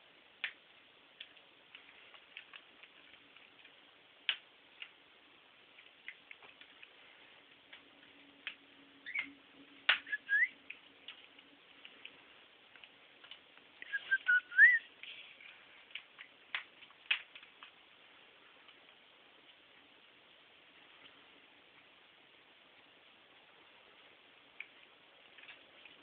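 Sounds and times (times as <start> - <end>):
light ticks and clicks: 0.4 - 19.9, 23.6 - 26.0
cockatiel chirps: 9.0 - 9.4, 10.0 - 10.6, 13.8 - 14.9.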